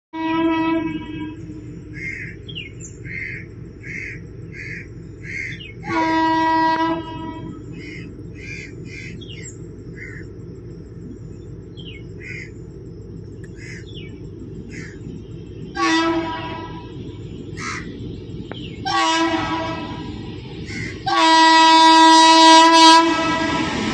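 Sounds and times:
train horn blasts: 0:00.1 - 0:01.7, 0:05.8 - 0:07.7, 0:15.7 - 0:17.0, 0:18.8 - 0:20.1, 0:20.8 - 0:23.9
bird calling: 0:01.3 - 0:10.4, 0:11.7 - 0:12.7, 0:13.3 - 0:22.6.

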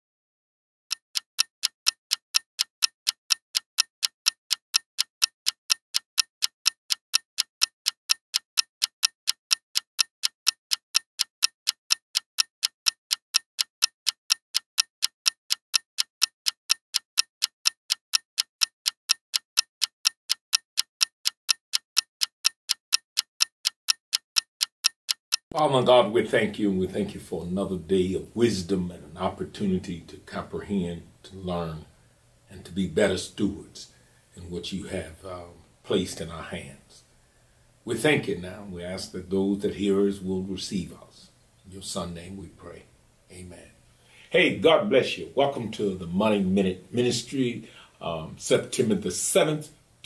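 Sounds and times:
clock ticking: 0:00.9 - 0:27.9, 0:44.4 - 0:49.8.

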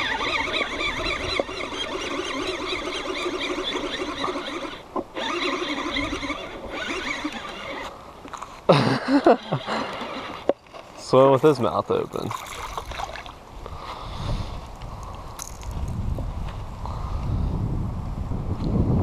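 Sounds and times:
fishing reel gears whirring: 0:00.0 - 0:08.0.

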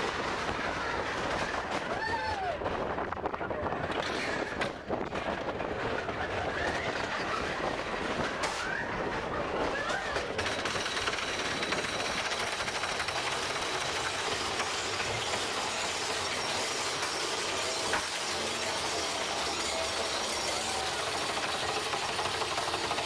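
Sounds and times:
roller coaster rattling on track: 0:00.0 - 0:23.0.

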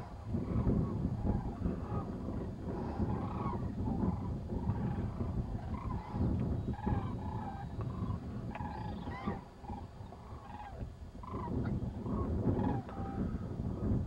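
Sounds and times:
cranes calling: 0:00.0 - 0:13.6
steady low rumble: 0:00.0 - 0:14.0.

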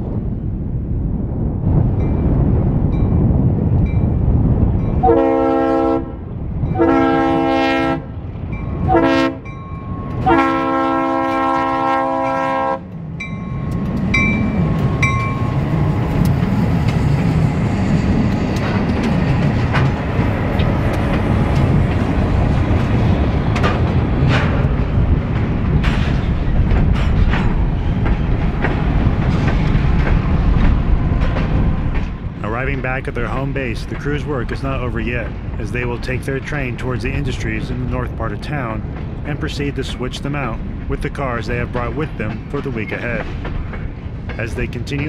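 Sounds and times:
train rumbling past: 0:00.0 - 0:45.0
locomotive horn: 0:05.0 - 0:06.2, 0:06.8 - 0:08.2, 0:08.8 - 0:09.5, 0:10.1 - 0:12.9
wheels clicking on rails: 0:12.9 - 0:45.0.

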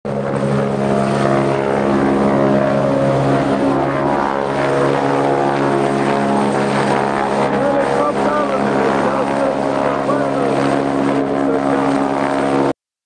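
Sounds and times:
engine drone: 0:00.0 - 0:12.7.

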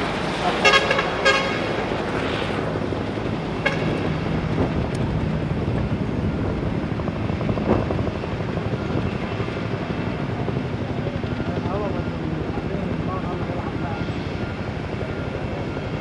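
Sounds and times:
vehicle engines rumbling: 0:00.0 - 0:16.0
vehicle horn toot: 0:00.6 - 0:01.6, 0:03.6 - 0:03.9.

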